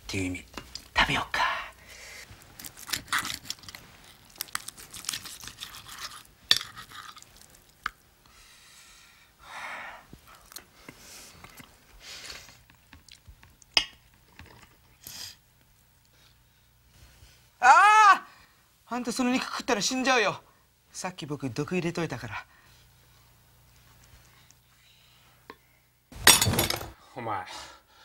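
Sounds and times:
person chewing: 2.4 - 8.0, 10.2 - 13.8.

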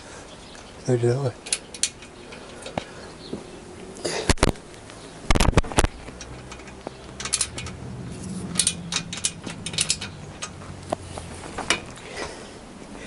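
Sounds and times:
ratchet wrench clicking: 6.2 - 7.8, 8.4 - 10.6.

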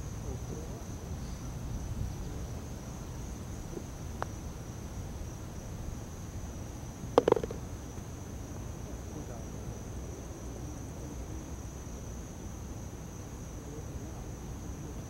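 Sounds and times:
golf ball clattering into cup: 7.2 - 7.6
putter striking golf ball: 7.2 - 7.7.

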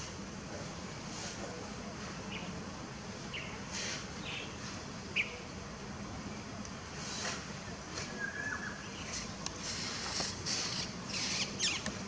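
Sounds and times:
bird chirps: 8.0 - 9.3, 10.5 - 12.0.

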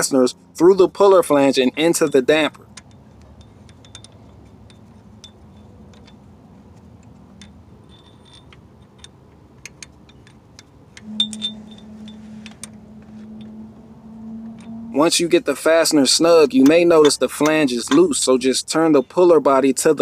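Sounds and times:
steady low hum: 2.6 - 17.4.

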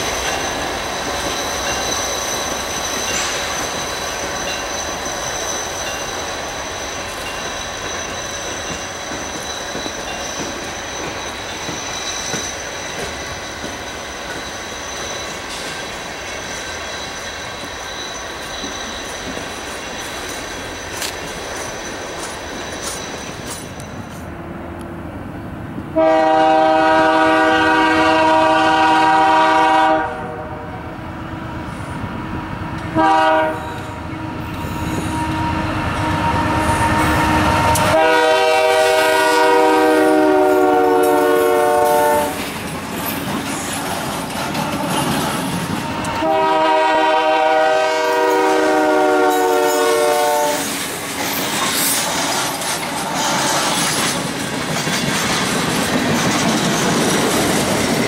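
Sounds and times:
locomotive air horn chord: 26.0 - 30.8, 33.0 - 42.4, 46.2 - 50.7.

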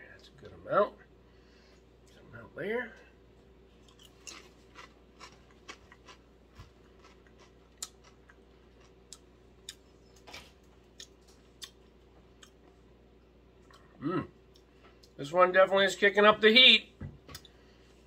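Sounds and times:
chip crunching while chewed: 3.8 - 9.8.

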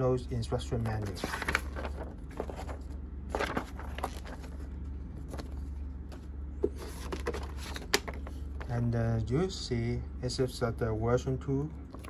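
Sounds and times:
low hum: 0.2 - 12.0
paper pages rustling: 0.8 - 8.7.

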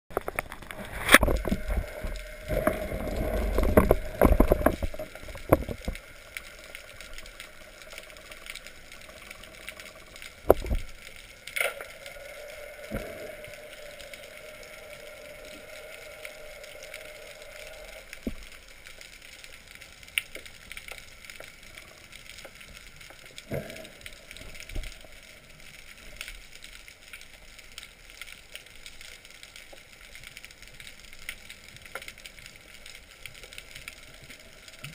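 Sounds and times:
underwater clicks and knocks: 0.1 - 6.0, 10.4 - 10.9
water splashing and rushing: 0.1 - 18.9.

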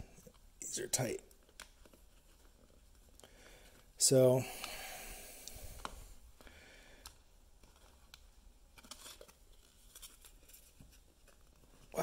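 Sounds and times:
rubber grommet worked into plastic: 0.2 - 4.0.

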